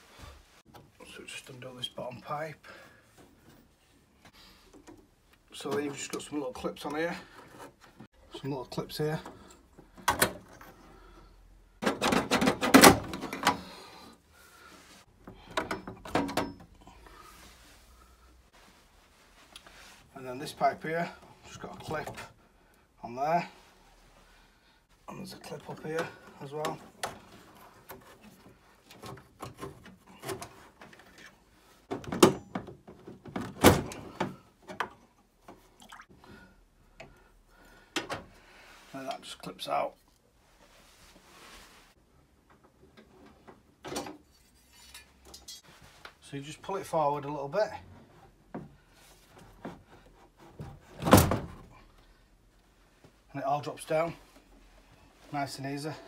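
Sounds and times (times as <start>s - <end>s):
clicks and knocks of copper pipework: 15.2s - 16.9s, 25.5s - 35.6s, 37.9s - 38.3s, 42.4s - 46.2s.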